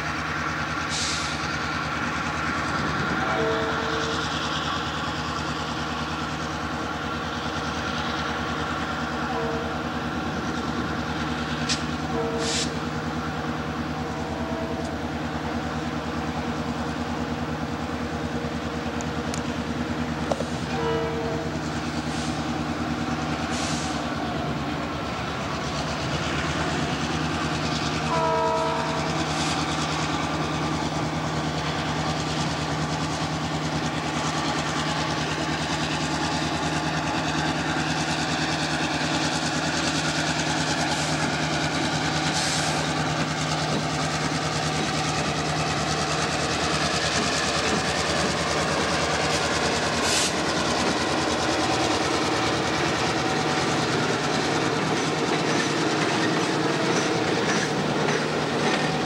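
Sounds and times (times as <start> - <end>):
train squeals: 0.0 - 17.8, 20.0 - 59.0
air horn blasts: 3.2 - 4.2, 12.1 - 12.8, 20.7 - 21.6, 28.1 - 29.0.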